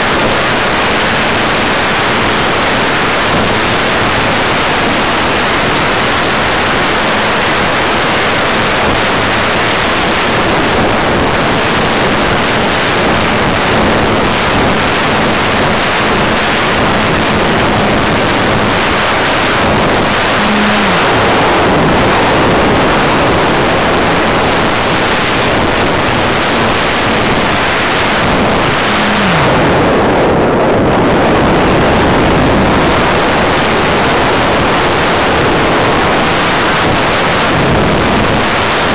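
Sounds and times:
faint electric motor hum: 0.0 - 30.2
wind rushing over microphone: 0.0 - 38.9.

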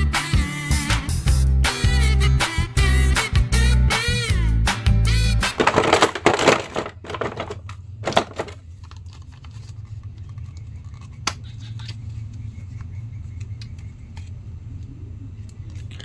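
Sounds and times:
plastic packaging crinkling: 5.6 - 11.0.

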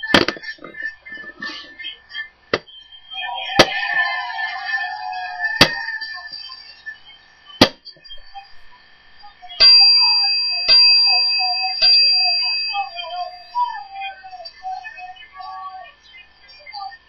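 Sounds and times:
ring bell struck: 9.6 - 14.0.

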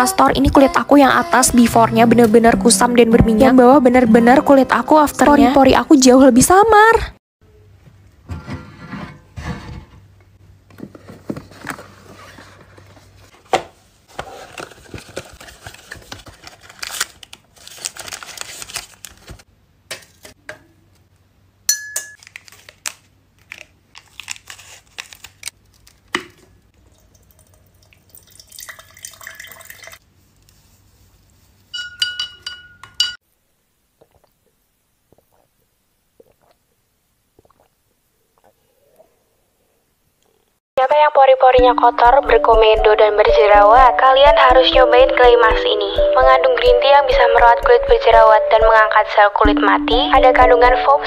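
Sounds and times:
glassware clinking: 21.7 - 22.2, 31.8 - 33.2
liquid pouring: 26.8 - 30.0
spoon stirring in glass: 31.7 - 33.2.

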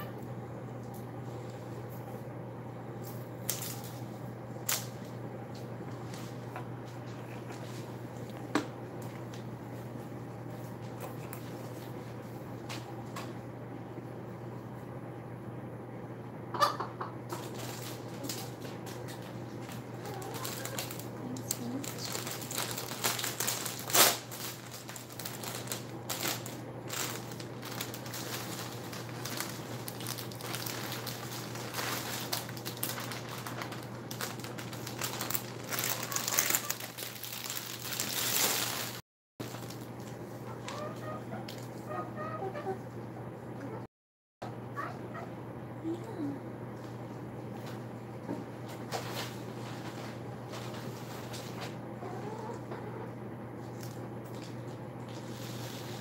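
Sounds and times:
steady low hum: 0.0 - 38.2, 39.4 - 56.0
chickens scratching in bedding: 17.3 - 23.8, 55.1 - 56.0.

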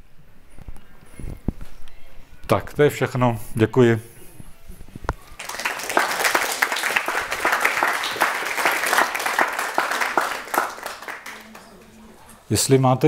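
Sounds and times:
audience clapping: 5.3 - 12.0.

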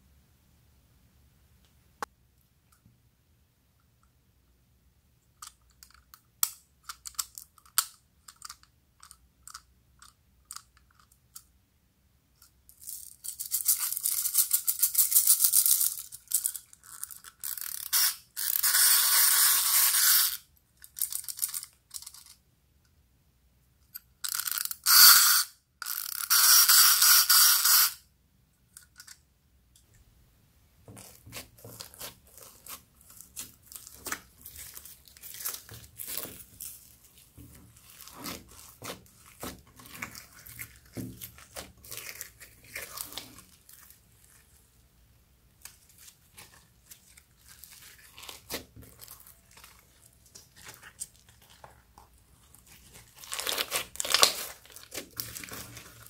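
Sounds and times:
slime squishing: 30.8 - 44.8, 45.4 - 56.0.

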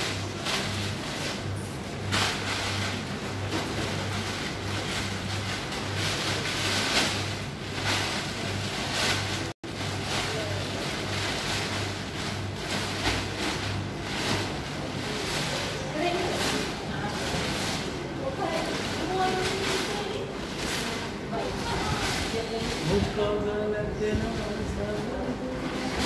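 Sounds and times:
washers and dryers humming: 0.0 - 26.0.

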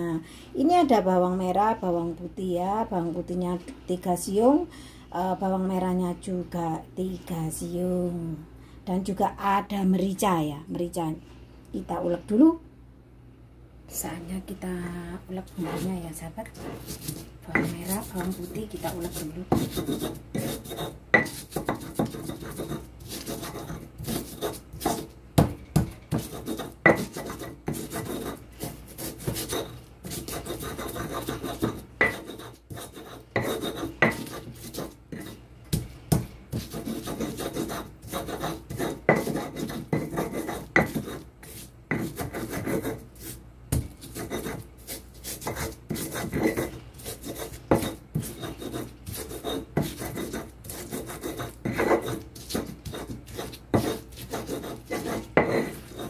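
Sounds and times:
stone pestle grinding in mortar: 15.5 - 56.0
pestle knocking on stone: 17.5 - 18.9, 19.5 - 28.3, 29.2 - 41.2, 43.7 - 44.6, 47.3 - 56.0.

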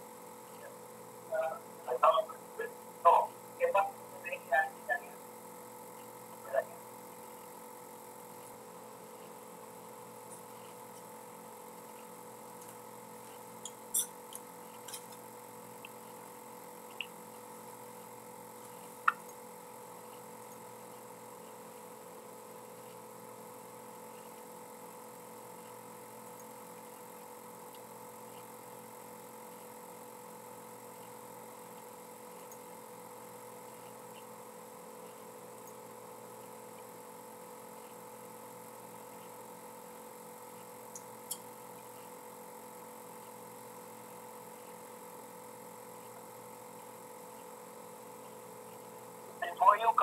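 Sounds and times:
electrical hum: 0.0 - 50.0
thin constant tones: 0.1 - 22.0.

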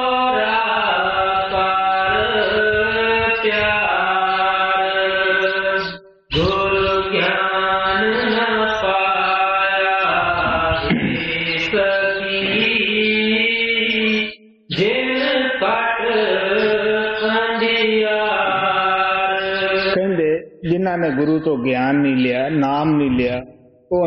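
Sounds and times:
person chanting a hymn: 0.0 - 24.0.

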